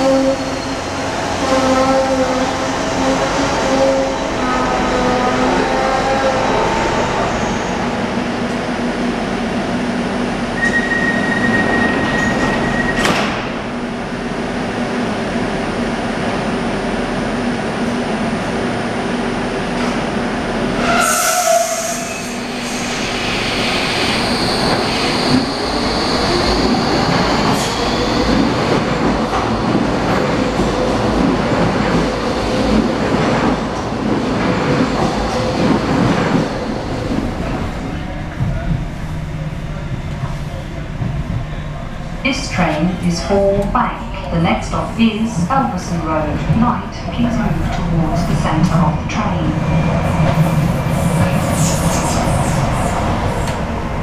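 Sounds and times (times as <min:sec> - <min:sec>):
rumbling train wheels: 0:00.0 - 0:54.0
train electrical hum: 0:35.2 - 0:54.0.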